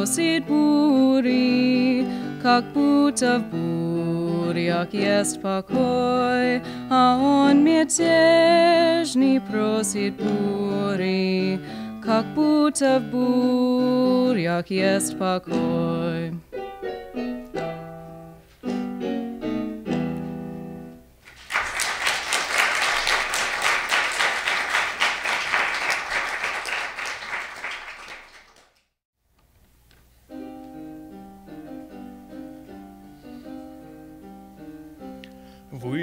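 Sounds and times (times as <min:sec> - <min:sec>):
musical accompaniment chords: 0:14.9 - 0:21.1, 0:30.3 - 0:35.8
audience applauding: 0:21.2 - 0:28.9.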